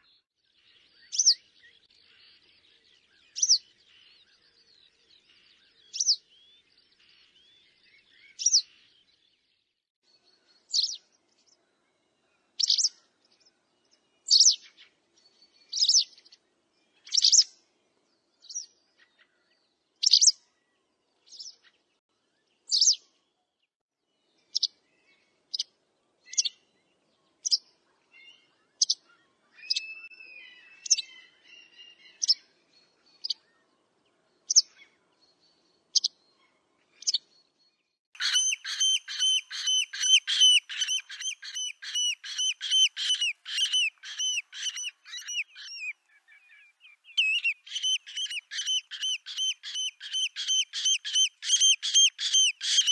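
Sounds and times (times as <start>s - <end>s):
wagtail calls: 38.2s - 45.9s, 47.2s - 52.9s
bird twittering: 38.2s - 52.9s.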